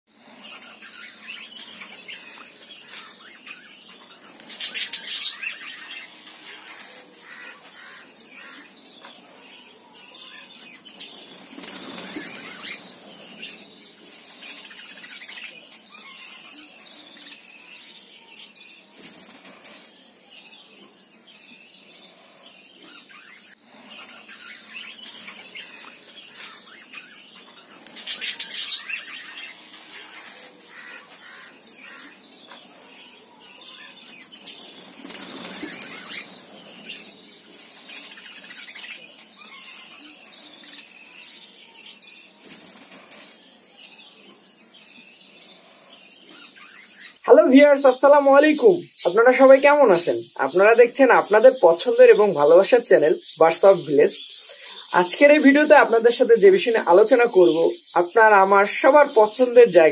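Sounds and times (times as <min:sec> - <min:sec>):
budgerigars chattering and chirping: 0:00.2 - 0:59.9
wings flapping: 0:11.0 - 0:13.6, 0:19.0 - 0:19.8, 0:34.4 - 0:37.1.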